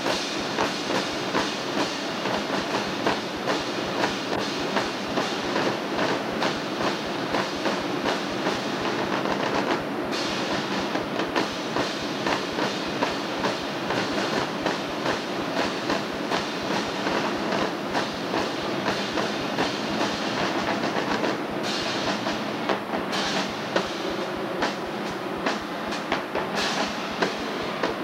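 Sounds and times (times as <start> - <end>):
marching drumline cadence: 0.0 - 28.0
bursts of hiss: 11.4 - 28.0.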